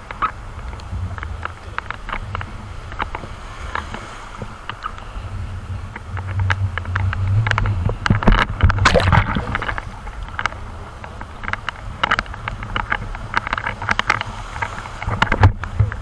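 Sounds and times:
water splashing: 0:00.0 - 0:16.0
waves rumbling: 0:00.0 - 0:16.0
water knocking on camera: 0:05.9 - 0:16.0.

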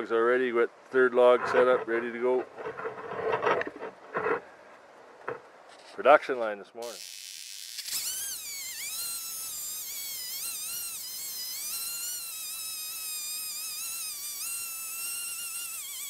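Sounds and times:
chainsaw cutting log: 0:06.8 - 0:16.0.

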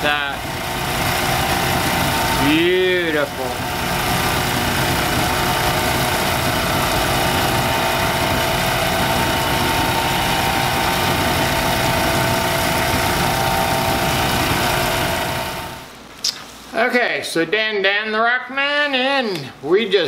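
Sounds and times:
electric motor humming: 0:00.0 - 0:15.9.

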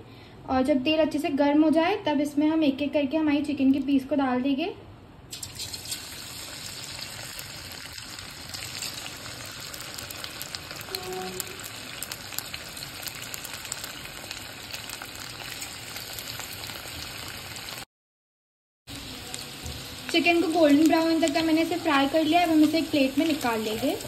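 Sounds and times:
food sizzling in hot oil: 0:05.3 - 0:17.9, 0:18.9 - 0:24.0.

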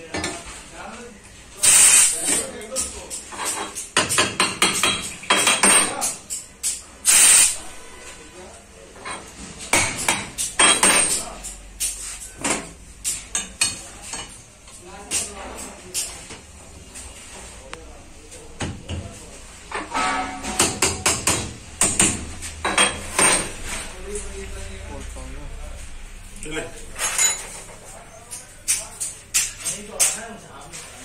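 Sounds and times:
metal parts clinking and knocking: 0:27.0 - 0:27.7.

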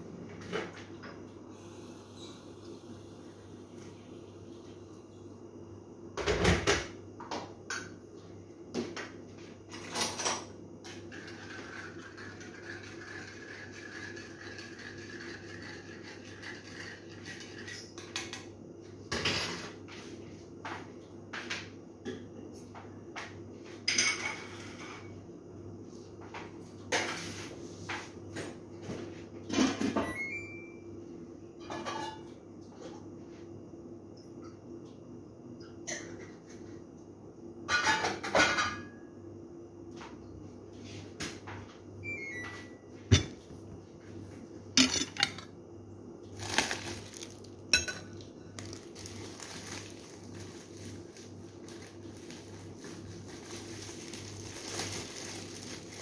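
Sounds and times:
dishes and utensils clattering: 0:23.9 - 0:25.1, 0:31.6 - 0:32.3, 0:37.7 - 0:38.9, 0:44.8 - 0:45.5, 0:46.4 - 0:49.1.

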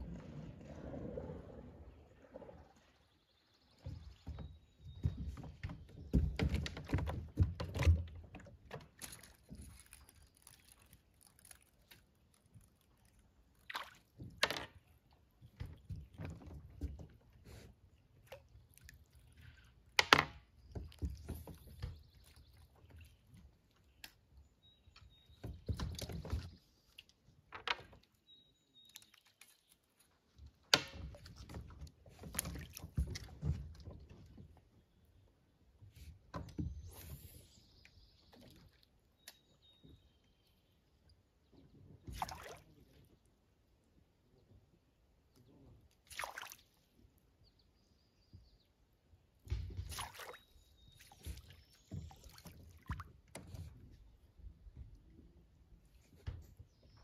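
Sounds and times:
water sloshing: 0:00.0 - 0:24.2, 0:28.8 - 0:34.7, 0:42.0 - 0:42.9, 0:49.4 - 0:54.0
knocks and thunks in boat: 0:03.6 - 0:09.8, 0:15.4 - 0:17.7, 0:20.0 - 0:23.6, 0:24.9 - 0:26.8, 0:30.5 - 0:34.8, 0:35.9 - 0:37.3, 0:49.4 - 0:55.1, 0:56.0 - 0:57.0.

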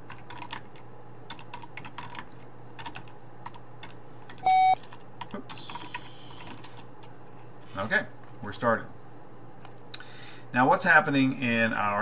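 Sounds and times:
keyboard typing: 0:00.1 - 0:06.8
electronic beep: 0:04.4 - 0:04.8.

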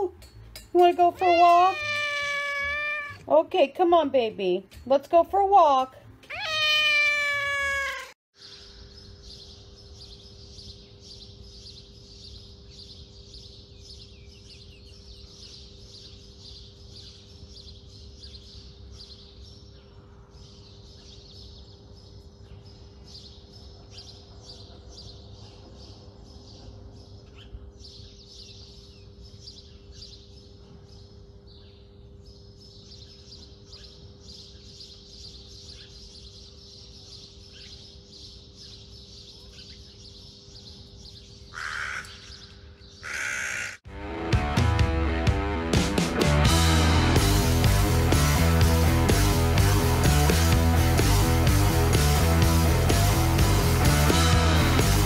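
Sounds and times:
small birds chirping: 0:00.0 - 0:43.8.

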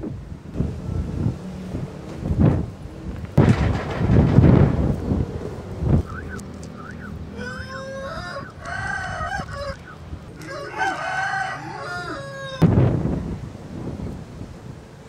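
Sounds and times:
wind gust buffeting microphone: 0:00.0 - 0:15.0
rooster crowing: 0:06.2 - 0:12.7.

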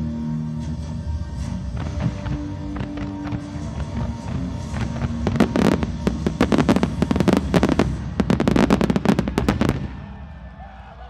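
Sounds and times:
firework shells bursting: 0:01.8 - 0:10.0.

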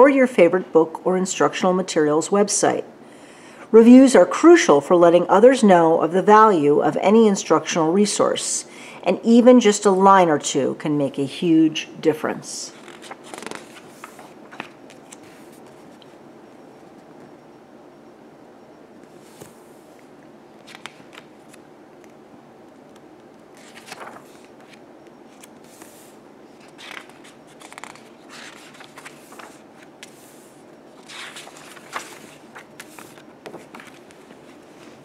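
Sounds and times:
book pages rustling: 0:12.7 - 0:16.2, 0:19.0 - 0:20.0, 0:20.6 - 0:22.2, 0:22.9 - 0:35.0.

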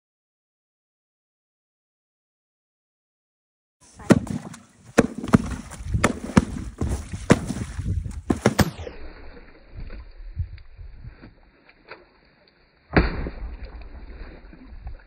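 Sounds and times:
water splashing: 0:03.9 - 0:15.0.

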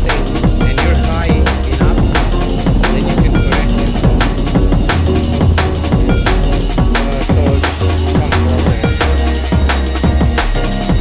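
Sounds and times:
electronic music with drum beat: 0:00.0 - 0:09.1
kick drums dropping in pitch: 0:00.5 - 0:09.0.

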